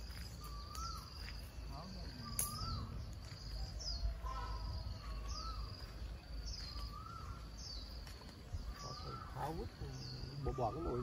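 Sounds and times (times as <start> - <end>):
bird calling: 0.0 - 11.0.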